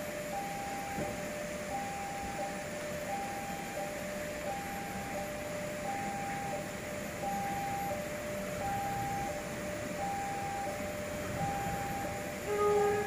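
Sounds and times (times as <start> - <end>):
level crossing alarm: 0.2 - 13.0.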